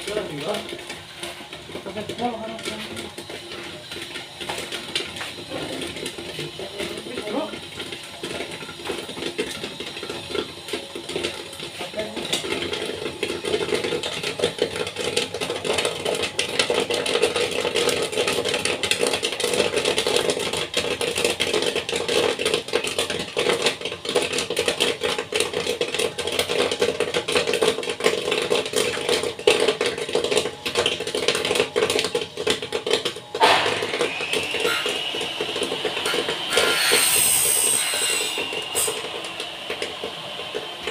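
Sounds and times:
popcorn popping: 0.0s - 40.9s
machine hum: 30.7s - 40.9s.

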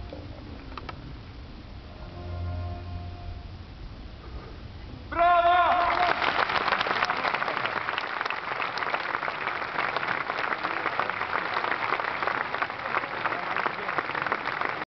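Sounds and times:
audience applauding: 5.6s - 14.9s.

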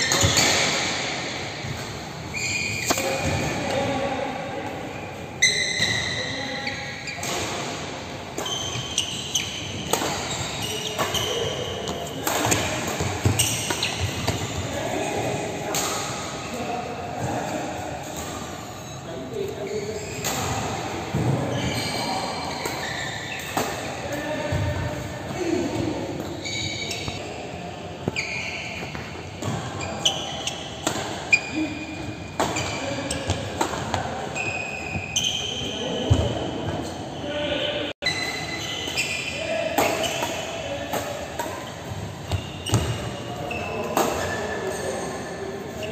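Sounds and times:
shoes squeaking on court: 0.0s - 3.6s, 8.3s - 15.0s, 17.2s - 37.3s, 38.0s - 45.9s
rackets hitting shuttlecock: 7.2s - 14.6s, 39.7s - 43.1s.

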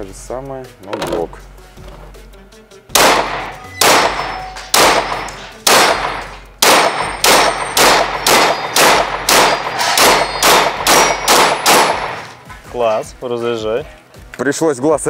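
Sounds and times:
pistol shots echoing indoors: 3.0s - 12.4s.

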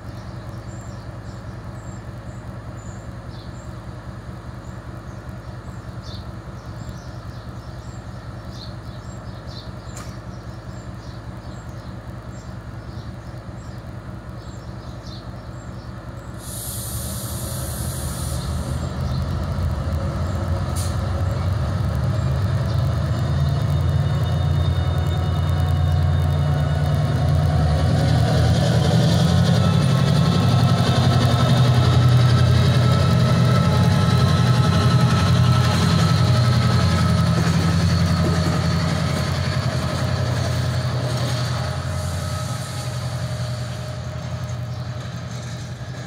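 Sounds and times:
diesel locomotive engine: 0.0s - 46.0s
air brakes hissing: 16.4s - 18.9s, 20.7s - 21.2s, 41.7s - 43.9s.

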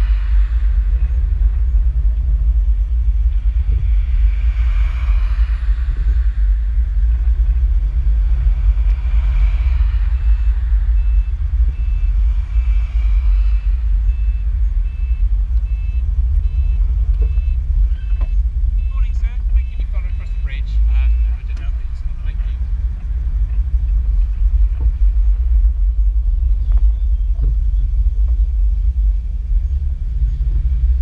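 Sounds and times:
low rumble of vehicles: 0.0s - 31.0s
reversing beeper: 9.0s - 22.7s.

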